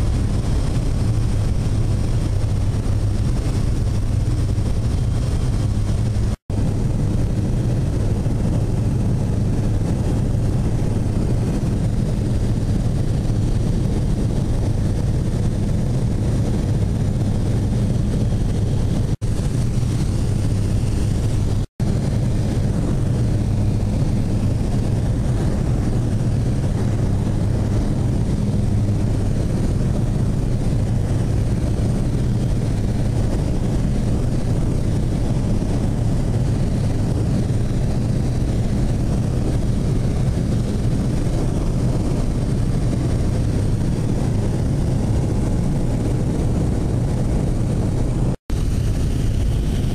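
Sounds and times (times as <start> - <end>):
propeller plane engine drone: 0.0 - 49.9.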